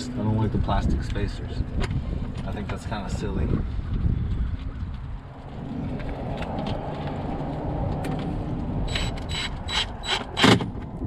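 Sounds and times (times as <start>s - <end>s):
power driver driving screw: 8.9s - 10.7s.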